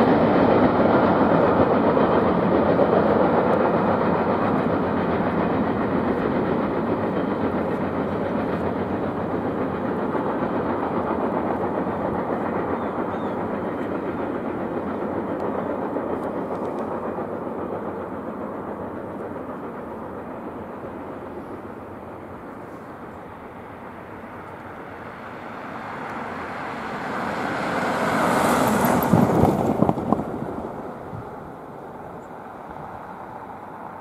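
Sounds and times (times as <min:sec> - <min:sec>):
freight train wheels on rails: 0:00.0 - 0:34.0.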